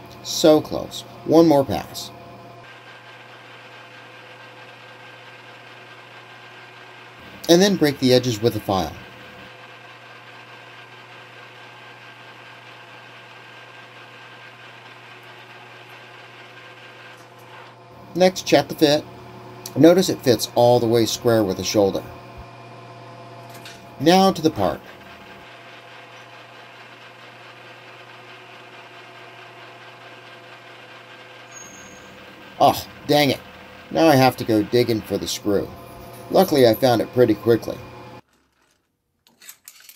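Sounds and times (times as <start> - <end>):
metal lathe humming: 0.0 - 38.2
file on spinning steel: 0.3 - 22.4, 24.0 - 38.2
lathe tool cutting hiss: 29.2 - 38.2.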